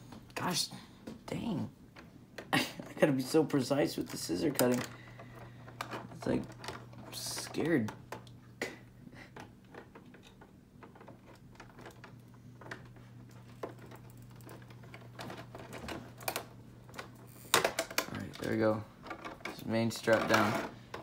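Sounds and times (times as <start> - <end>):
faint steady hum: 0.0 - 21.0
plastic clicks and crinkles: 9.2 - 21.0.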